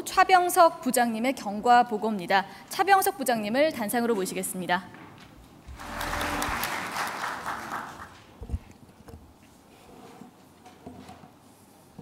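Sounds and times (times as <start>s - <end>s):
audience applauding: 5.7s - 8.3s.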